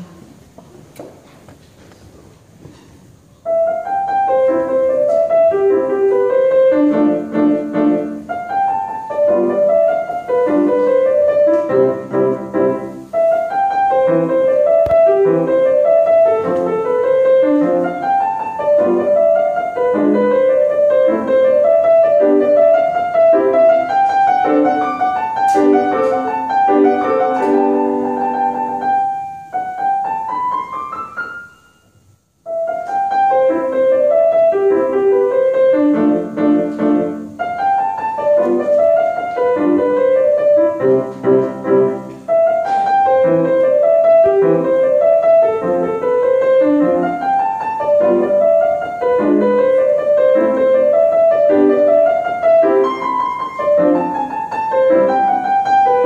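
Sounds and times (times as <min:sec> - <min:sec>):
grand piano playing: 0:03.2 - 0:56.0.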